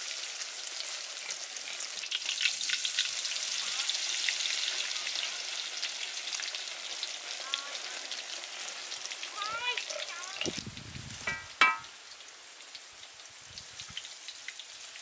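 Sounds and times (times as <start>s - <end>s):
oil sizzling and crackling: 0.0s - 15.0s
sharp oil pops: 11.2s - 11.9s.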